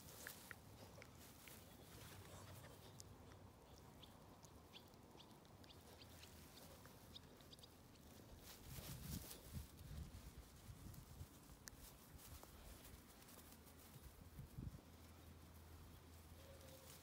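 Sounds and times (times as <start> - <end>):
puppy chewing grass: 0.0 - 17.0
small ticks: 0.1 - 8.6.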